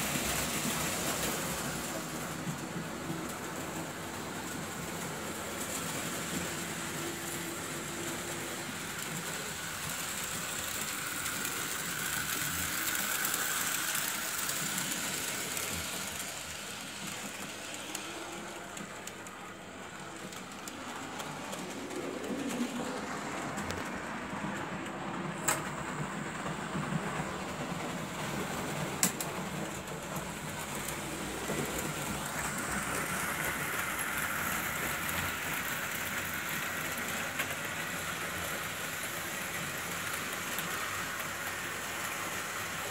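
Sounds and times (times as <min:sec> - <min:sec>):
wheels rattling over rails: 0:00.0 - 0:42.9
model train motor whine: 0:06.3 - 0:19.2.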